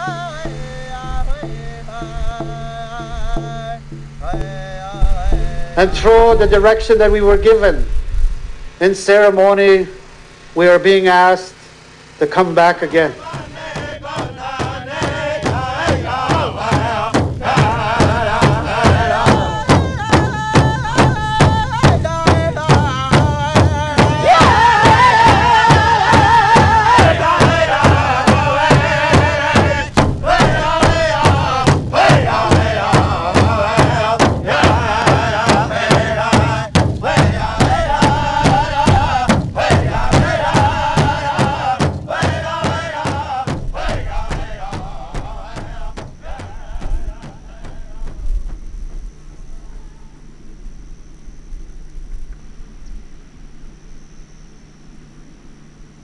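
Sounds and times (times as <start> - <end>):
men singing a chant together: 0.0 - 7.6, 12.2 - 48.2
large drum beat: 0.0 - 10.8, 11.7 - 49.5.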